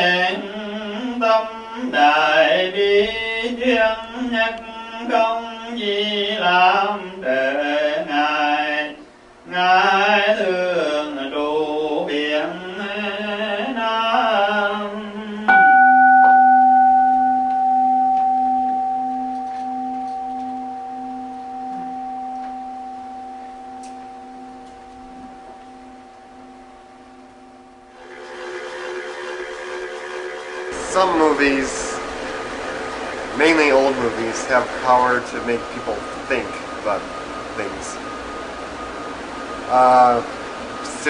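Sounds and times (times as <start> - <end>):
bowl bell ringing: 15.5 - 28.0.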